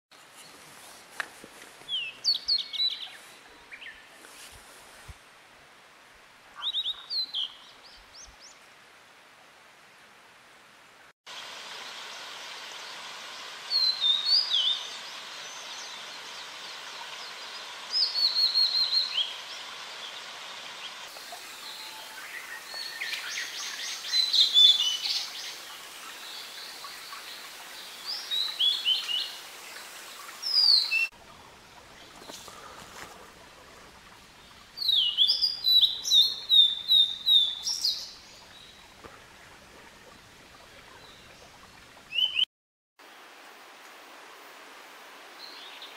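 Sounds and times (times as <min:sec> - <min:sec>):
steady hiss: 0:09.8 - 0:41.6
bird whistling song: 0:13.7 - 0:14.9, 0:18.0 - 0:19.3, 0:34.8 - 0:38.1.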